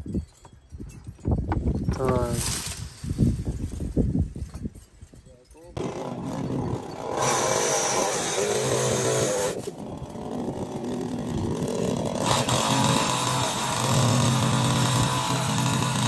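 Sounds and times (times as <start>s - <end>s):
chainsaw cutting wood: 5.8s - 16.0s.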